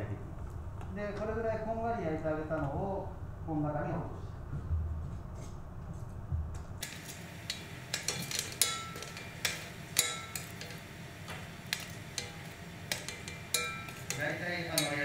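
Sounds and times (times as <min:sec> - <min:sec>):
fish bones dropping into pot: 0:06.8 - 0:15.0
metal tongs clicking on metal: 0:06.8 - 0:15.0.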